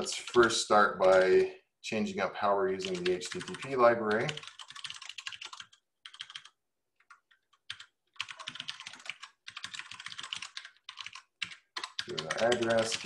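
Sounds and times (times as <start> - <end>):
typing on computer keyboard: 0.2 - 1.4, 2.8 - 13.0.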